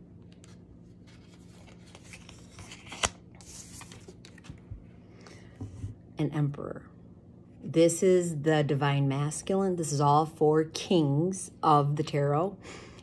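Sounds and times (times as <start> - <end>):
cards shuffling: 0.2 - 4.7.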